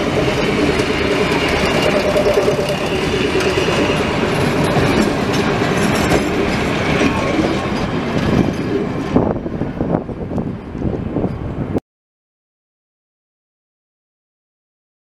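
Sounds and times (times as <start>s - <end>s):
wheels clicking over rail joints: 0.0s - 11.7s
diesel railcar engines and wheels rumbling: 0.0s - 11.8s.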